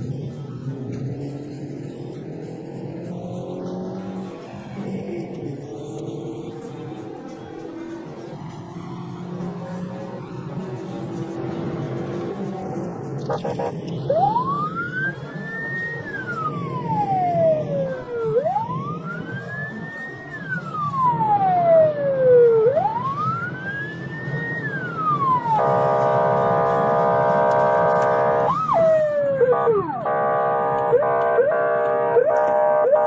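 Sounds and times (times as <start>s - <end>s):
car and road rumble: 0.0s - 33.0s
police siren wailing: 3.4s - 33.0s
siren horn tone: 13.2s - 23.4s, 24.4s - 33.0s
siren whoop: 13.2s - 33.0s.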